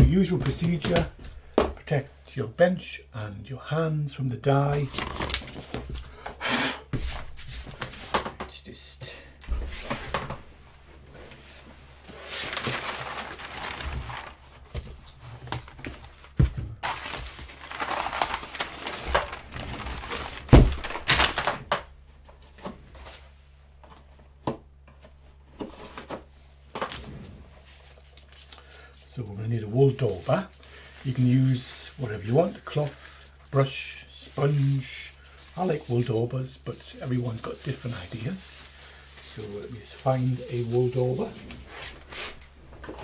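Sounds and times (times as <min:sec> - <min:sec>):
rustling and crinkling: 0:09.5 - 0:43.0.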